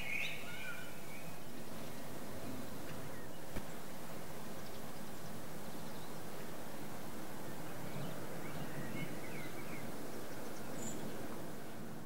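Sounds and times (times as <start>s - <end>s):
faint bird chirps: 0.0s - 2.1s, 7.5s - 11.2s
outdoor background noise: 0.0s - 12.0s.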